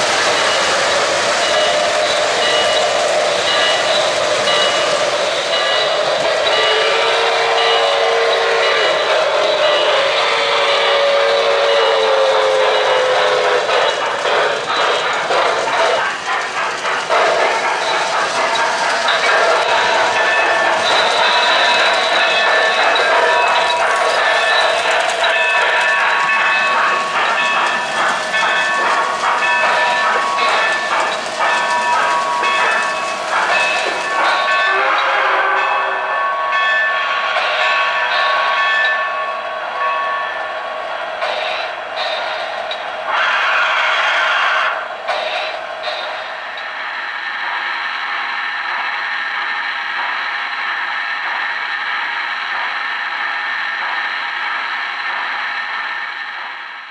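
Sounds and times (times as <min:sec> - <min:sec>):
electronic steam chuffing: 0:00.0 - 0:35.6
model trains clattering: 0:00.0 - 0:52.8
model trains whirring: 0:00.0 - 0:56.9.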